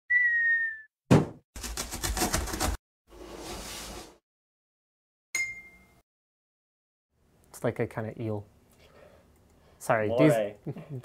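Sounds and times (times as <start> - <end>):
cartoon whistle sliding down: 0.1 - 0.9
sharp thump: 1.1 - 1.4.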